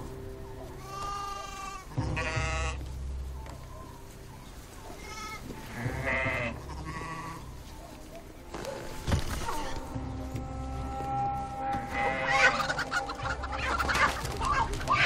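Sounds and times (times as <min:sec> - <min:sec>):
sheep bleating: 0:00.8 - 0:02.8, 0:05.0 - 0:07.5, 0:09.4 - 0:13.9.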